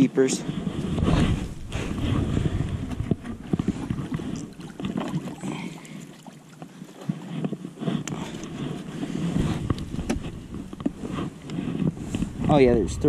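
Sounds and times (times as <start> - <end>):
wind rumbling on microphone: 0.0 - 5.6, 7.3 - 13.0.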